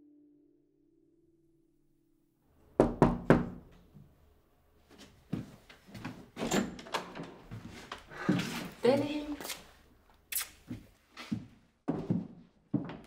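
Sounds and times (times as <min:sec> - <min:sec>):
knocks on a door: 0:02.8 - 0:03.6.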